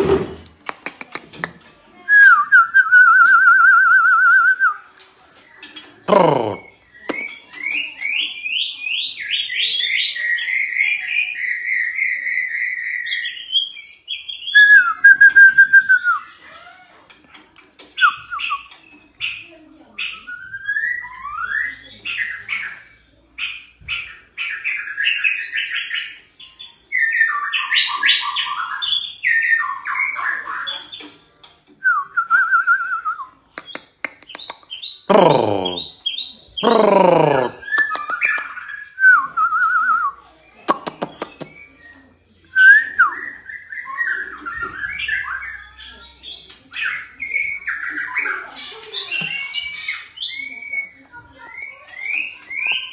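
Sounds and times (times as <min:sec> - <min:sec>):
bird singing whistled phrases: 0:06.6 - 0:16.4, 0:18.0 - 0:19.0, 0:20.0 - 0:22.5, 0:40.8 - 0:52.9.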